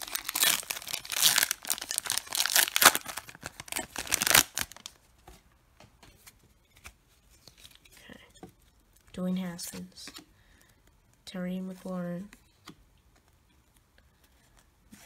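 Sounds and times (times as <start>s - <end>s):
foil wrapper tearing and crinkling: 0.0s - 4.9s.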